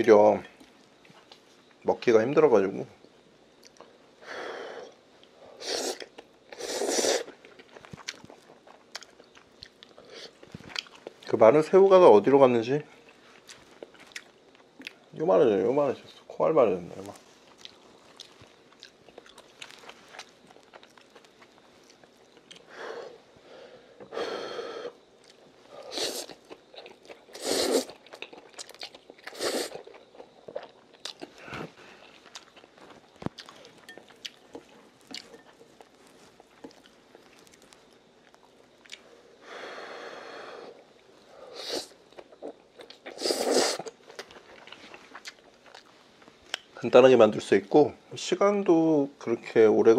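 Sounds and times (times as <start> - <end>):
person chewing noodles: 4.8 - 11.2, 13.0 - 15.1, 17.4 - 23.2, 23.9 - 39.2, 40.4 - 46.7.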